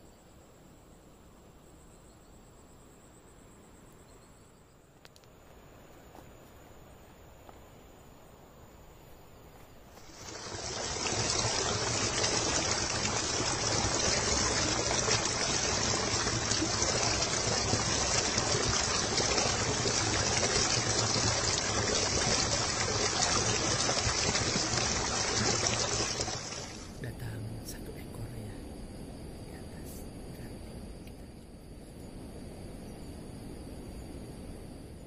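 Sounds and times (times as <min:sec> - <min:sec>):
water splashing into a pool: 0:10.0 - 0:27.0.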